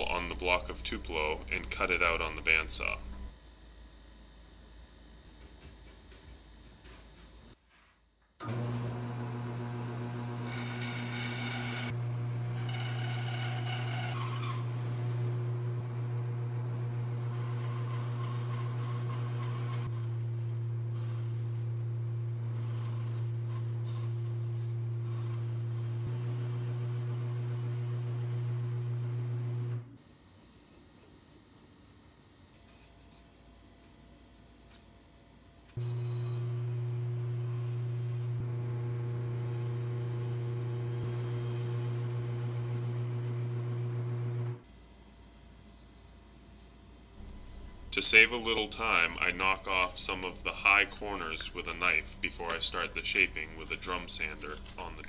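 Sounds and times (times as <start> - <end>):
bandsaw motor humming: 8.4 - 30.0, 35.8 - 44.6, 47.2 - 55.0
saw blade rasping through wood: 17.0 - 20.1.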